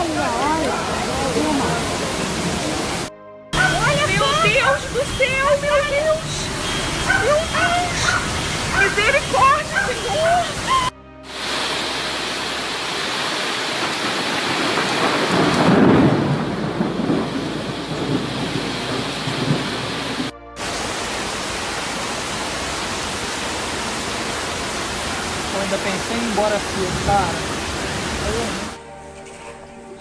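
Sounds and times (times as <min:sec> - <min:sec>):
flood torrent roaring: 0:00.0 - 0:28.8
rain: 0:00.0 - 0:29.8.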